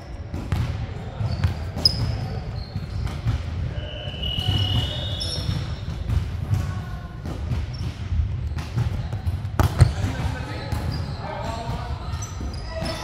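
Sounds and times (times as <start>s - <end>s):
sneakers squeaking: 0.0s - 13.0s
ball bouncing on wooden floor: 7.3s - 11.0s.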